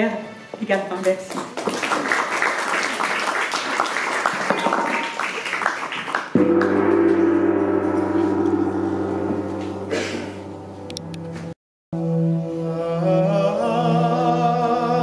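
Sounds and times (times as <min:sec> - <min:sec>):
audience applauding: 0:01.3 - 0:06.7
large gong struck and ringing: 0:06.4 - 0:11.6.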